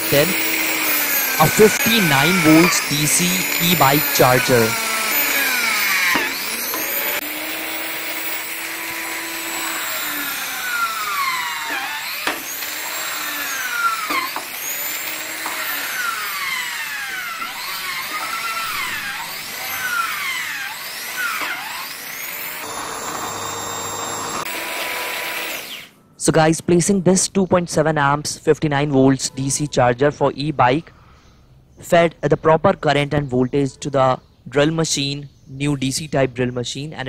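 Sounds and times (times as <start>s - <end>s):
drill motor whine drilling wood: 0.0s - 26.0s.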